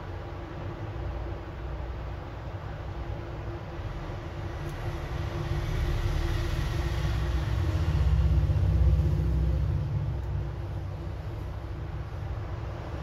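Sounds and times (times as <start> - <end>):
faint steady hum: 0.0 - 13.0
low rumble: 3.8 - 13.0.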